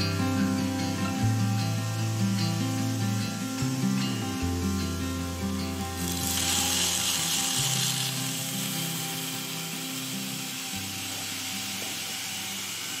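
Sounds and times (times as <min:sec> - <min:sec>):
background music with held chords: 0:00.0 - 0:13.0.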